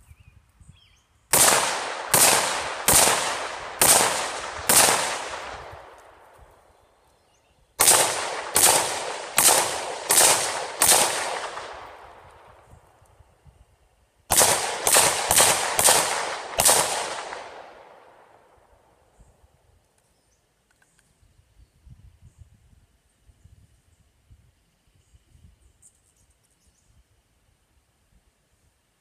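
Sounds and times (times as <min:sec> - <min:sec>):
rifle shots echoing: 0:01.3 - 0:06.3, 0:07.8 - 0:12.7, 0:14.3 - 0:18.7.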